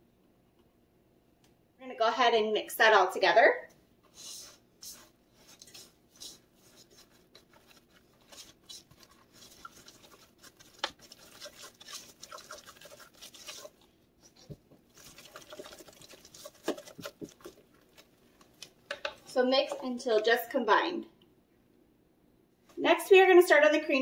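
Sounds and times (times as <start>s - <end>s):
spatula scraping bowl: 4.1s - 18.1s.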